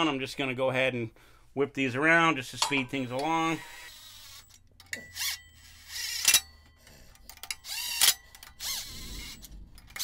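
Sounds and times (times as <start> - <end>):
cordless impact wrench spinning: 3.2 - 6.6, 7.2 - 10.0.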